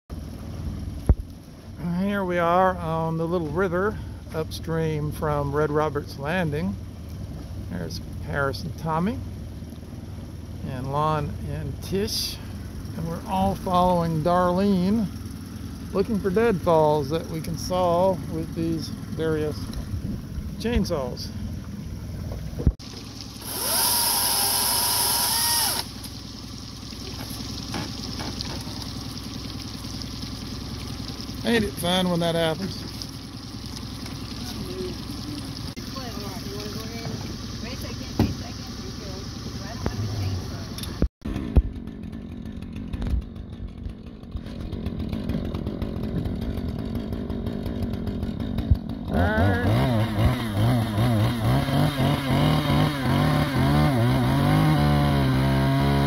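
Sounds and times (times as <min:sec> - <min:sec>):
low steady rumble: 0:00.1 - 0:51.5
chainsaw revving: 0:23.4 - 0:26.1, 0:41.3 - 0:56.0.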